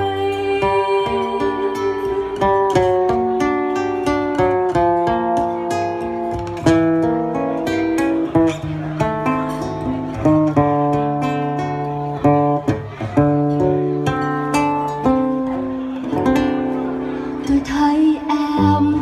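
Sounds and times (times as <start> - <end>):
solo acoustic guitar: 0.0 - 19.0.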